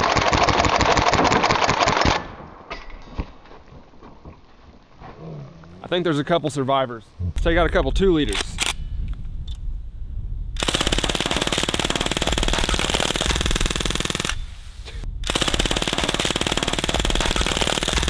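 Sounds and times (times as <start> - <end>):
bb submachine gun firing bursts: 0.0 - 2.2, 10.6 - 14.5, 15.2 - 18.0.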